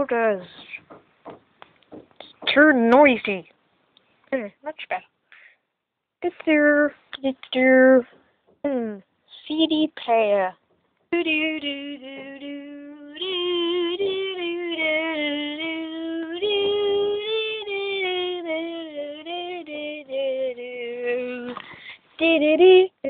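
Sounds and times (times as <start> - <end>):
high voice singing wordless tune: 1.9 - 3.4, 6.2 - 23.0.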